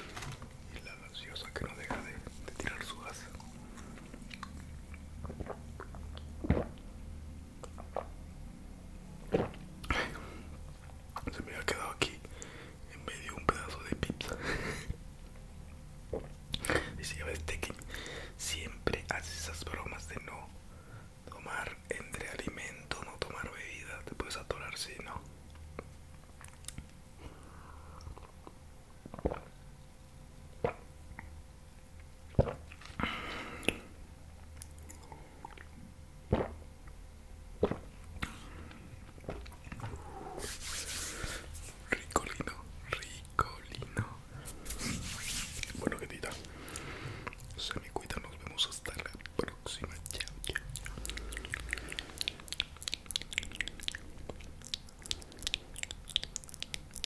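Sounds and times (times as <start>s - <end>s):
man gulping and swallowing: 0.0s - 6.9s, 7.6s - 8.2s, 9.2s - 10.2s, 16.1s - 16.9s, 28.0s - 29.6s, 30.5s - 31.4s, 32.0s - 37.0s, 37.6s - 40.4s, 41.9s - 57.0s
wet chewing mouth clicks: 3.2s - 6.9s, 34.6s - 36.6s, 45.6s - 57.0s.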